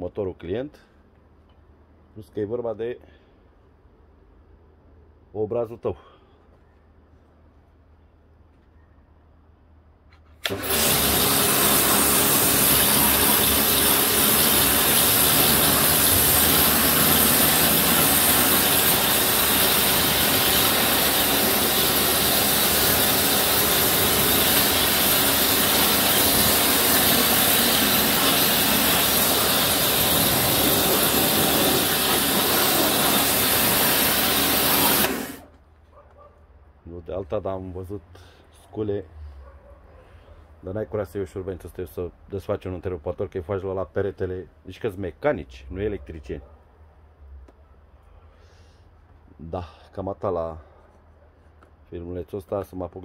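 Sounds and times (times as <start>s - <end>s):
pressure washer spraying: 10.4s - 35.5s.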